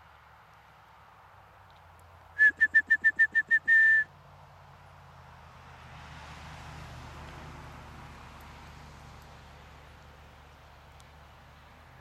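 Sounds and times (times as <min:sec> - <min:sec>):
person whistling: 0:02.4 - 0:04.1.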